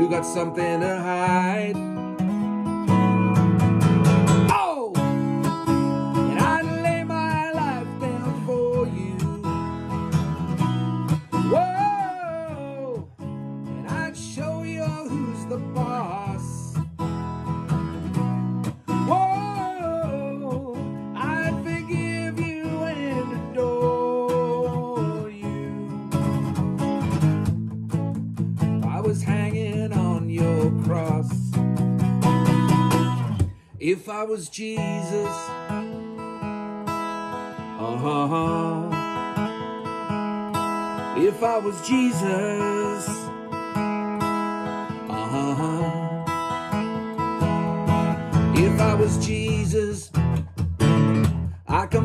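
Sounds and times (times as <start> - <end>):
man singing: 0.0 - 2.0, 4.4 - 5.5, 6.1 - 10.2, 11.3 - 16.8, 18.9 - 26.4, 28.8 - 31.6, 33.6 - 36.0, 37.6 - 39.2, 41.1 - 43.4, 44.9 - 46.6, 48.1 - 50.5, 51.5 - 52.0
acoustic guitar strumming: 0.0 - 52.0.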